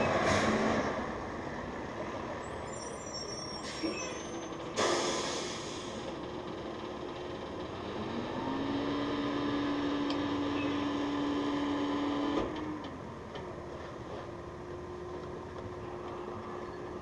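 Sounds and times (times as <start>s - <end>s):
garbage truck engine revving: 4.7s - 12.6s.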